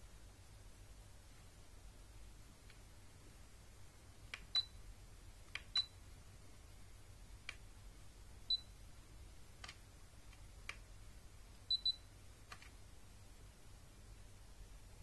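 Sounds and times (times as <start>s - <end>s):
humidifier beeping: 4.3s - 4.9s, 5.5s - 6.1s, 8.4s - 8.8s, 11.6s - 12.2s.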